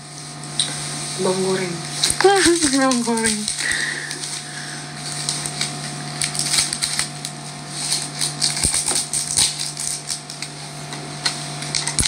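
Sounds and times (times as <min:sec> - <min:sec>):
steady hum: 0:00.0 - 0:12.0
fried shallots rattling and crackling: 0:02.2 - 0:04.4, 0:05.1 - 0:10.4.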